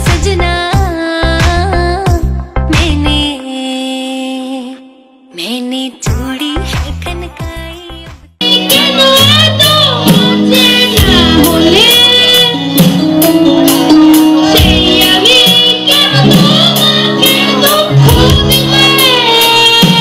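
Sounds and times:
boy singing into a microphone: 0.0 - 20.0
live band with guitar and keyboard: 8.4 - 20.0.

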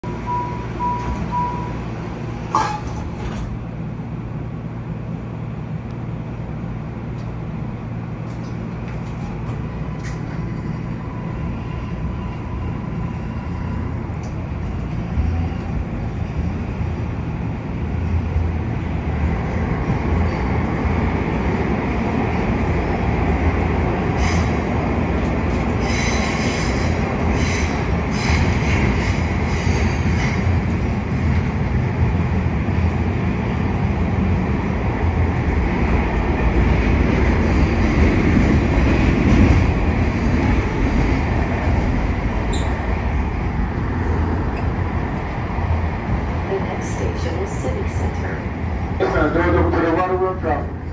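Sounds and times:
train wheels rumbling on rails: 0.0 - 50.9
clicking from the rails: 8.2 - 10.5, 14.1 - 15.0
high-pitched wheel squeal: 42.5 - 42.8.

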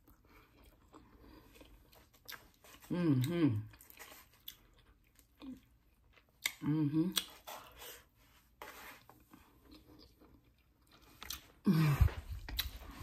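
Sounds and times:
person chewing food: 0.0 - 13.0
person humming: 6.6 - 7.2, 11.7 - 12.3.

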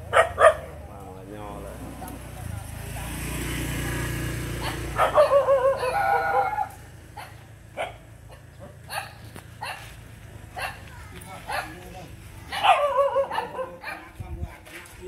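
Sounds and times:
dog yipping: 0.1 - 0.7, 4.6 - 9.9, 10.6 - 11.8, 12.5 - 14.2.

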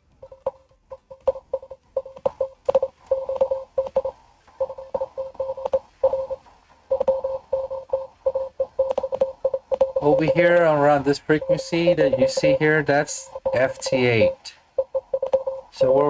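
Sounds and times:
faint receiver hiss: 0.0 - 16.0
morse code tone: 0.2 - 16.0
sharp clicks: 8.8 - 10.7, 14.9 - 15.5.

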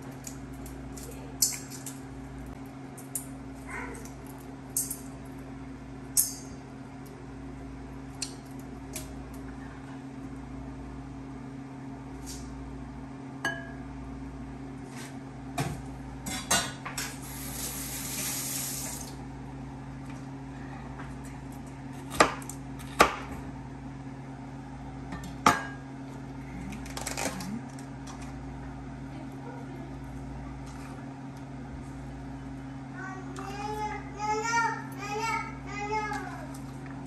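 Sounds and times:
hiss: 17.2 - 19.1.

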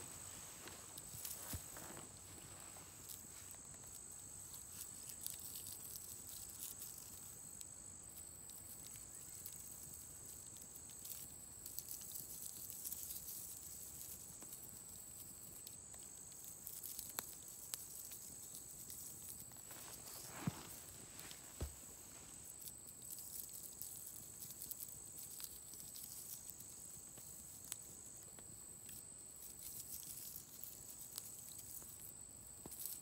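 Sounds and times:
dry wheat crackling and rustling: 0.0 - 7.0, 16.6 - 26.5.

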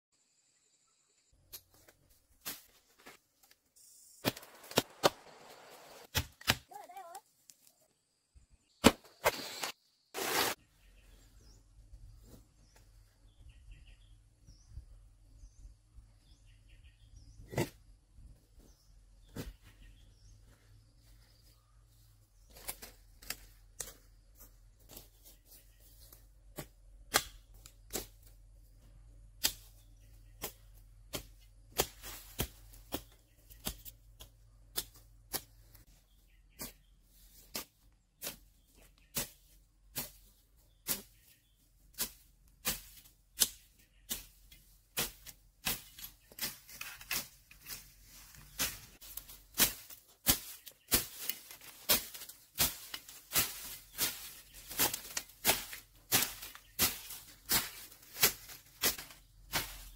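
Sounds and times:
blade chopping bamboo: 6.1 - 6.7, 26.6 - 28.2, 30.4 - 35.6, 48.6 - 59.9.

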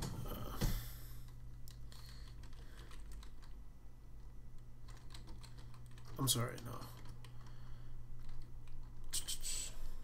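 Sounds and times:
steady low hum: 0.0 - 10.0
computer keyboard typing: 1.2 - 3.6, 4.2 - 7.6, 8.2 - 9.2.

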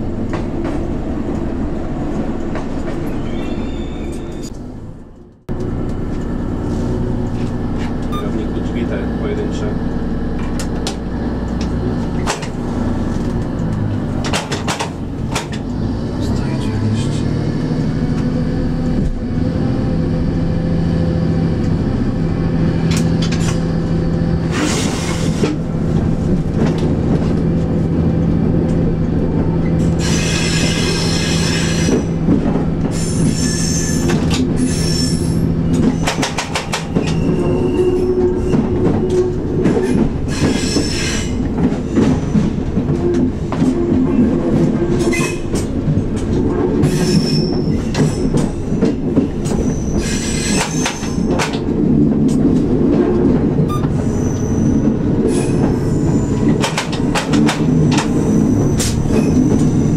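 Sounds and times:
train wheels squealing: 3.0 - 4.5, 29.7 - 32.1, 32.9 - 42.5, 46.8 - 48.7, 49.4 - 51.3, 53.7 - 56.6, 57.7 - 59.9
diesel engine running: 4.5 - 30.1.

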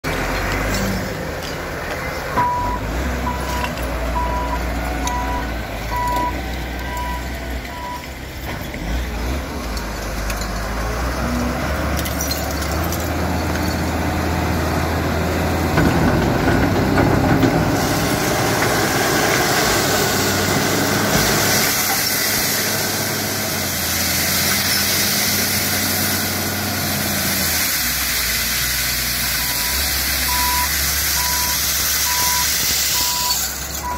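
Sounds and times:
diesel engine running: 0.0 - 33.9
reversing alarm beeping: 2.4 - 8.1, 29.4 - 33.9.

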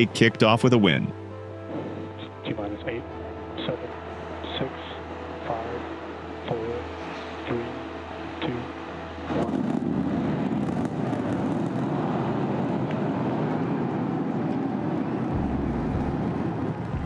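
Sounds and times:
deep low rumble: 9.3 - 17.0
rocket rumble with crackle: 9.4 - 17.0.

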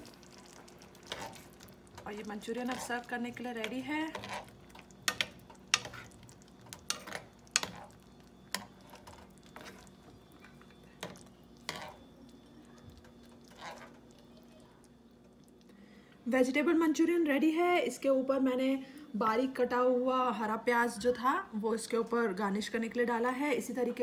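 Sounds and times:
metal spoon scraping a frying pan: 1.0 - 1.6, 2.6 - 9.9, 11.0 - 12.1, 13.5 - 14.0.

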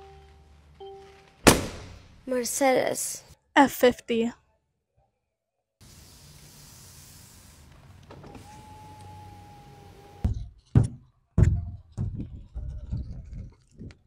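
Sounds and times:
electric car window motor whine: 7.5 - 10.3.

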